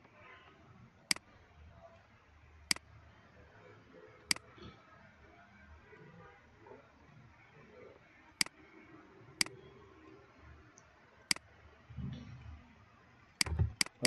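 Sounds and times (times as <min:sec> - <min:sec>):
computer mouse clicks: 0:13.4 - 0:14.0.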